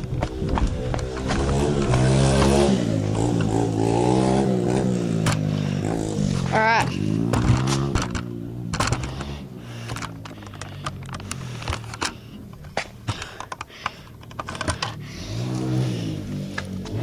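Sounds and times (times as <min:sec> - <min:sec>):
dirt bike engine revving: 0:00.0 - 0:13.4, 0:14.5 - 0:17.0
sharp irregular clicks and taps: 0:07.3 - 0:15.0.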